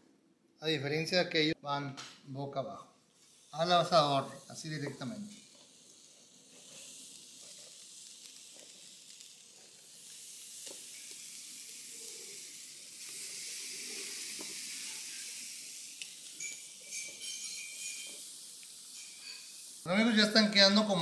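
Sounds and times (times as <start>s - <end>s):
shrimp sizzling on grill: 3.2s - 21.0s.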